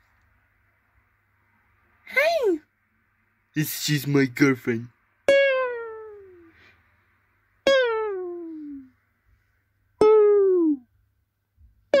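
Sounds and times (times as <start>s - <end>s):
plucked string notes: 5.2s - 6.5s, 7.6s - 8.9s, 10.0s - 10.8s.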